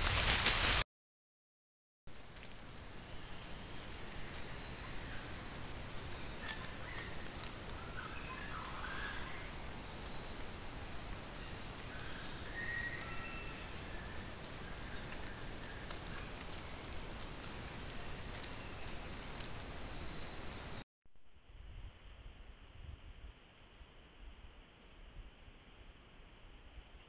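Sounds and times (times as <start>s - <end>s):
even hiss: 0.0s - 0.8s, 2.2s - 20.8s
light ticks from leaf litter: 0.0s - 0.8s, 2.2s - 20.8s
high-pitched insect chorus: 2.2s - 20.8s.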